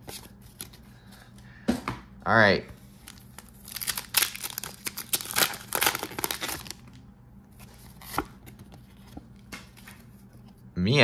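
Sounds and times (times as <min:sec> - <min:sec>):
foil wrapper tearing and crinkling: 0:03.0 - 0:07.0.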